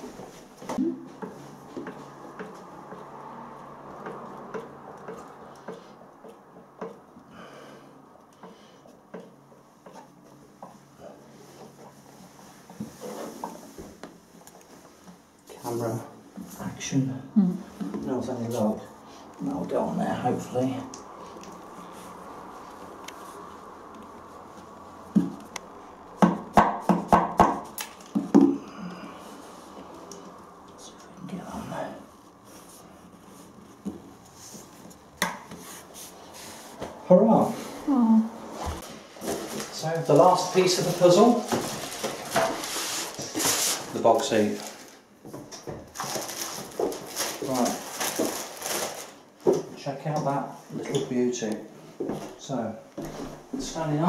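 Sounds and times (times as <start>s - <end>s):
tool knocking and tapping: 26.2s - 28.6s.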